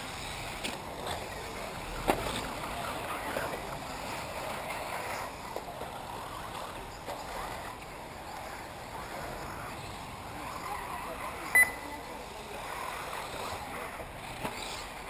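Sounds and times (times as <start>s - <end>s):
rc buggies running on dirt: 0.0s - 11.5s.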